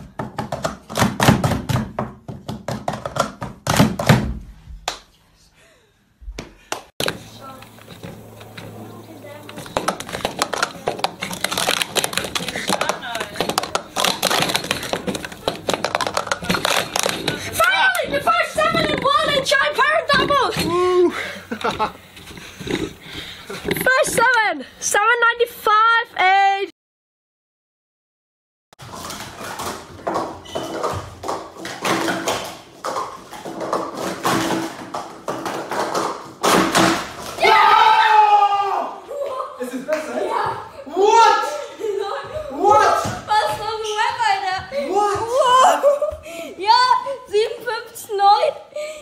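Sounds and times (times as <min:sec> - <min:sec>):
plastic cups clattering: 0:09.5 - 0:20.7, 0:28.8 - 0:37.4.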